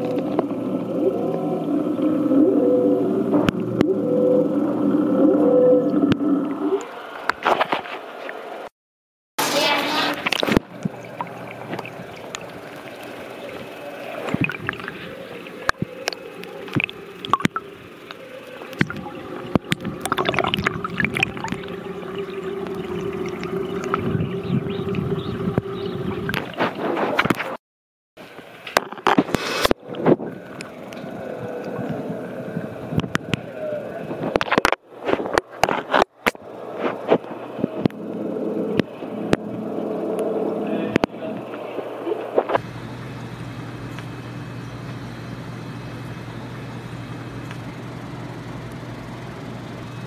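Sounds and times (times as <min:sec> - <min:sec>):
aquarium water gurgling and bubbling: 0:00.0 - 0:08.7, 0:09.4 - 0:27.6, 0:28.2 - 0:50.0
pump hum: 0:00.0 - 0:08.7, 0:09.4 - 0:27.5, 0:28.2 - 0:50.0.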